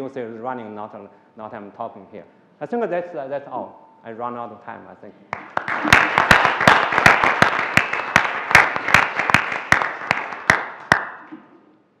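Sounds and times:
audience applauding: 5.3 - 11.2
close hands clapping: 5.3 - 11.3.

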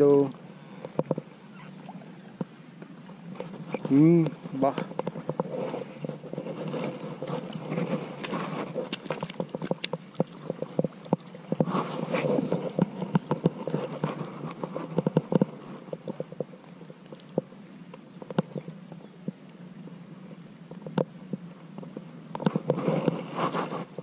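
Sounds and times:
faint steady hum: 0.0 - 24.0
clicks and rustles of tackle: 3.4 - 17.5.

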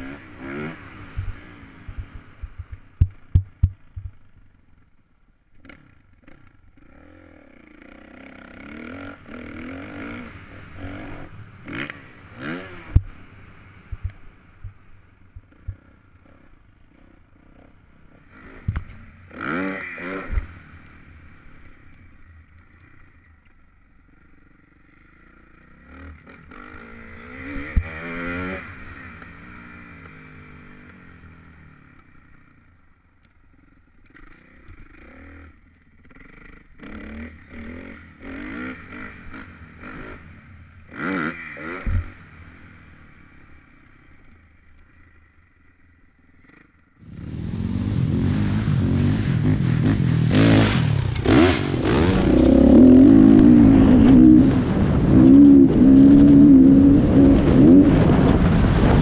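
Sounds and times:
dirt bike engine revving: 0.0 - 4.3, 5.6 - 14.8, 15.4 - 23.2, 24.1 - 32.5, 34.0 - 43.5, 46.4 - 59.0
knocks and clatter from bike: 1.2 - 4.2.

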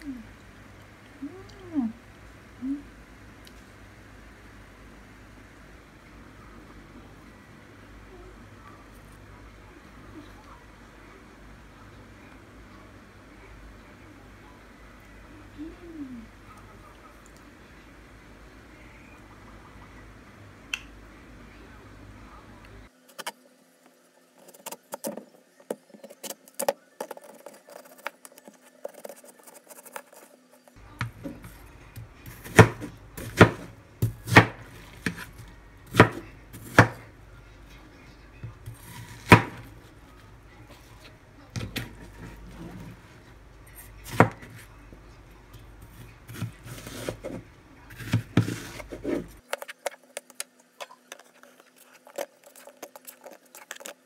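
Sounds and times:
sharp knife chops: 32.2 - 35.3, 35.9 - 37.0, 38.8 - 39.7.

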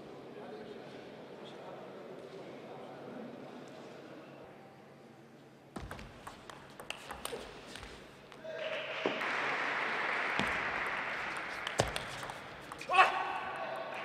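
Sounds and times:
table tennis ball clicking: 5.8 - 7.9, 11.2 - 12.9
crowd applause: 8.5 - 14.0.

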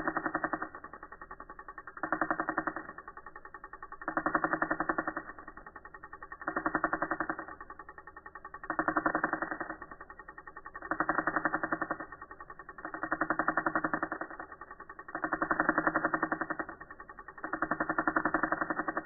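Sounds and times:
slowed tattoo machine pulsing: 0.0 - 19.0.

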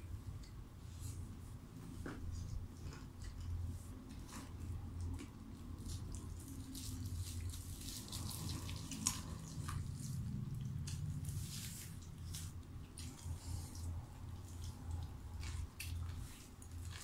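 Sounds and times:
low steady hum: 0.0 - 17.0
wet chewing and smacking: 4.3 - 17.0
paper wrappers crinkling: 5.7 - 10.2.

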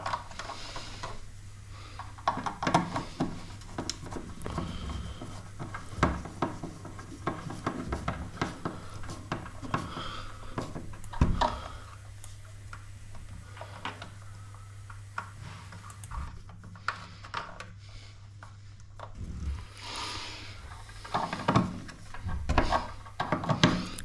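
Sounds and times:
steady low hum: 0.0 - 24.0
clicks and rubbing of cable: 1.9 - 19.6.

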